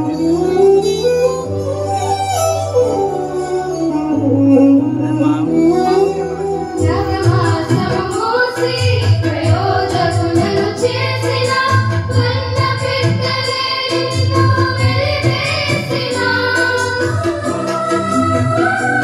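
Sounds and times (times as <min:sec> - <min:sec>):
electronic keyboard chords: 0:00.0 - 0:13.4
girls singing into microphones: 0:06.8 - 0:19.0
rhythmic bass line: 0:06.8 - 0:19.0.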